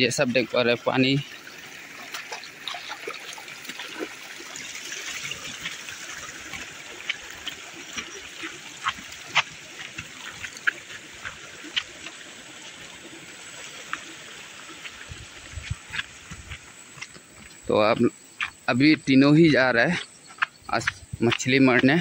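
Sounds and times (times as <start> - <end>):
stream of water trickling: 0.0 - 22.0.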